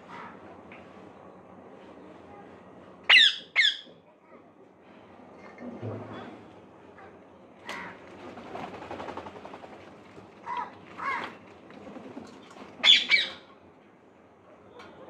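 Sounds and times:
parrots screeching: 3.1s - 3.9s, 12.8s - 13.4s.

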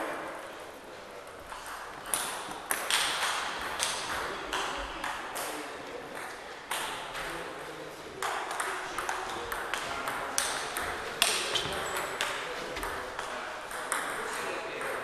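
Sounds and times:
table tennis balls ticking: 8.2s - 15.0s.

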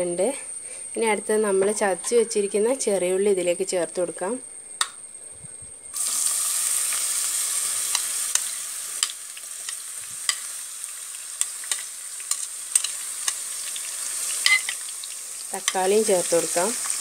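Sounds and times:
shallots sizzling in oil: 5.9s - 17.0s.

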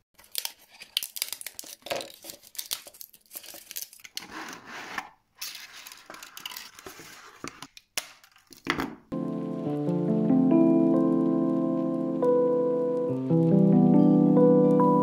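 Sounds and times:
plastic cracking and snapping: 0.2s - 4.2s, 5.4s - 6.8s
scratchy tearing of plastic: 0.2s - 8.6s.

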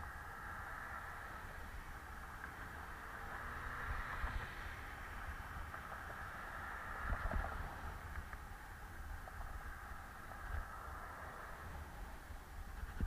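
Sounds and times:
road rumble: 0.0s - 13.0s
wind: 0.0s - 13.0s
low thumps from road bumps: 2.2s - 8.5s, 12.6s - 13.0s.

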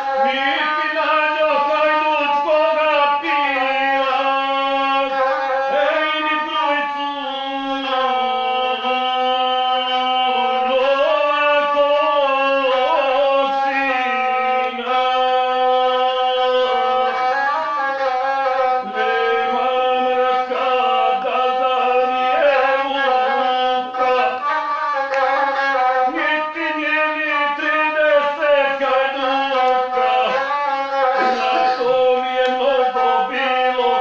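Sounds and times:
man singing: 0.0s - 34.0s
bowed single-string fiddle droning: 28.6s - 34.0s.

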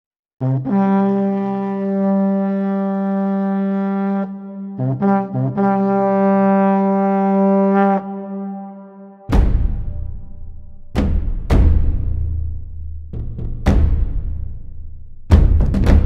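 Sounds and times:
brass horn notes: 0.4s - 10.2s.

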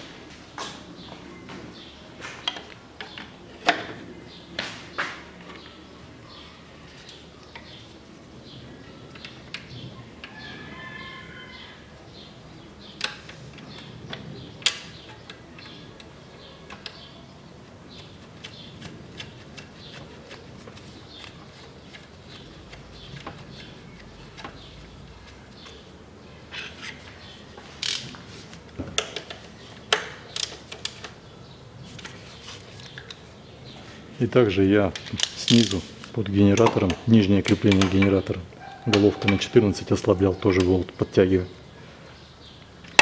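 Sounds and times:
wrench and ratchet clicking on metal: 35.2s - 35.8s.

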